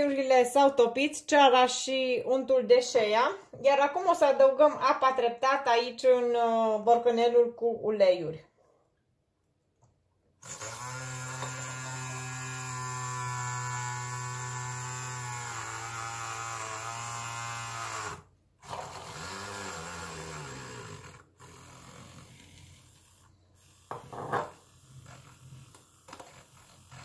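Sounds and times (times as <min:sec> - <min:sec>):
milk frother whirring: 0:10.4 - 0:27.0.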